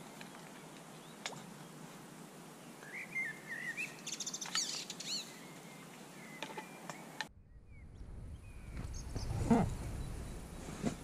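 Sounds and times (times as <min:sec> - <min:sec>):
birds chirping: 0:02.8 - 0:10.9.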